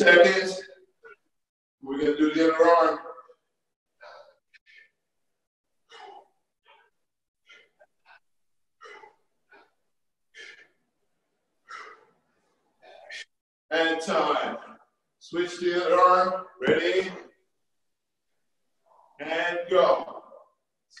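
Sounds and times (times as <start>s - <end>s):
man breathing hard in puffs: 4.0s - 5.2s, 5.8s - 13.4s.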